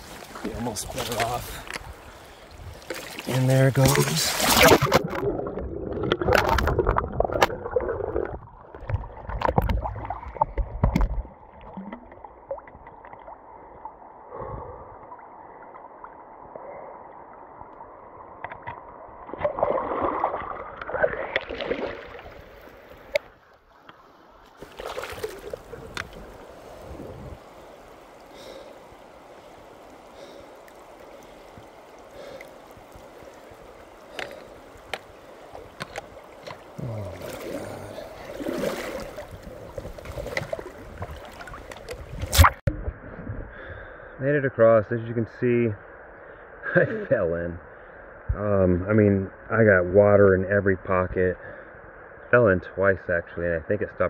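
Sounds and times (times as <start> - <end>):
heavy splashing water: 0.0 - 12.0, 19.3 - 23.1, 24.6 - 42.7
river rushing: 24.6 - 39.4
muffled underwater gurgling: 36.7 - 41.0.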